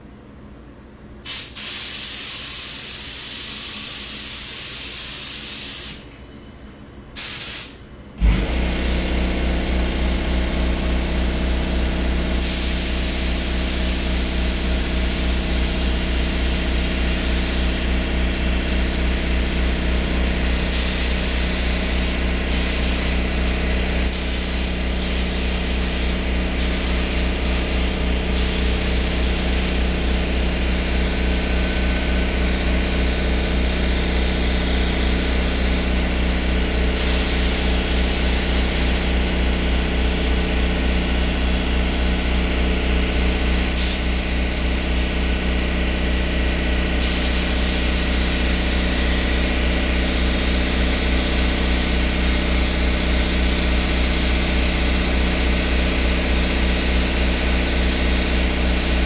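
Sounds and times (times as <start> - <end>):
air compressor pulsing hum: 0.0 - 59.0
paint spray gun hissing: 1.2 - 6.1, 7.2 - 7.8, 12.4 - 18.0, 20.6 - 30.0, 36.9 - 39.2, 43.7 - 44.2, 47.0 - 59.0.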